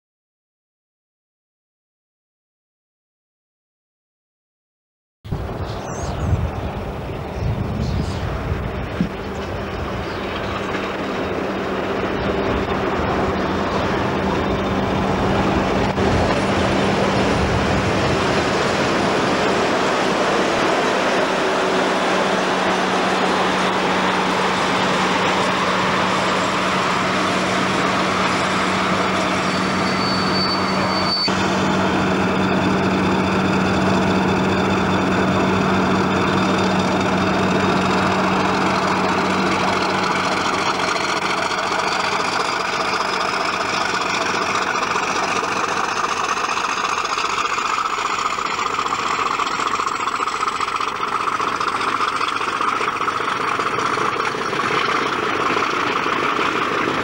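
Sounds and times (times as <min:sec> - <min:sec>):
diesel locomotive engine drone: 0:05.3 - 0:57.0
thin high whine: 0:19.4 - 0:56.6.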